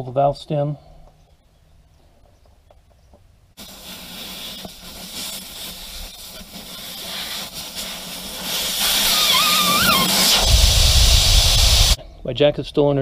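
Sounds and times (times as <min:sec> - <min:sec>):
air hissing out of tire valve: 0:03.6 - 0:12.0.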